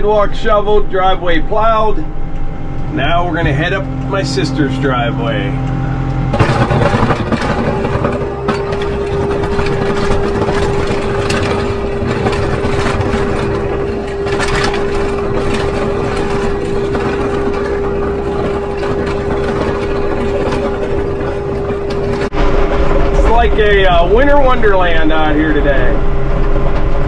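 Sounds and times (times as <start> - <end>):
constant whine: 0.0 - 27.0
tractor diesel engine running: 0.0 - 27.0.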